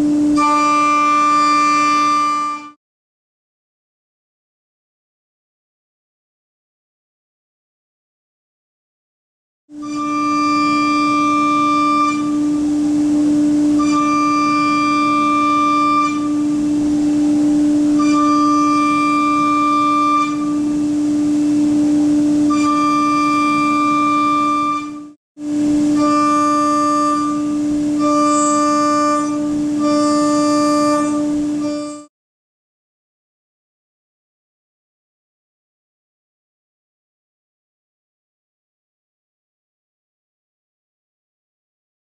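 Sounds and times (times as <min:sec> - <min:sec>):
shrill whine of cutter in metal: 0:00.0 - 0:02.8, 0:09.8 - 0:32.1
spindle tone: 0:09.8 - 0:32.1.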